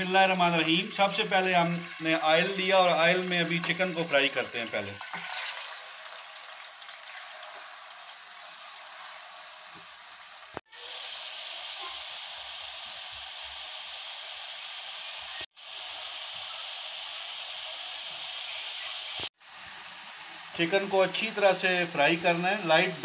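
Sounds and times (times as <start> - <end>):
chicken frying in hot oil: 0.0 - 23.0.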